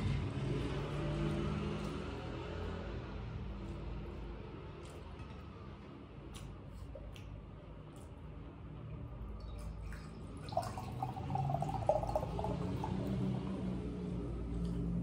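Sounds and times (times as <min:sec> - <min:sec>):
cola pouring into glass: 0:09.4 - 0:13.8.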